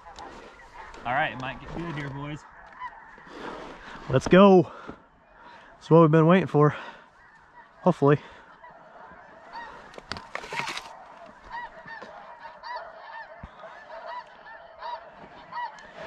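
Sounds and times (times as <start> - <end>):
flock of geese honking: 0.0 - 16.0.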